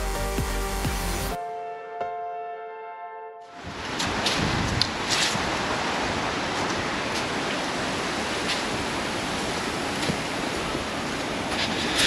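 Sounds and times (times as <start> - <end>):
outdoor background hiss: 3.6 - 12.0.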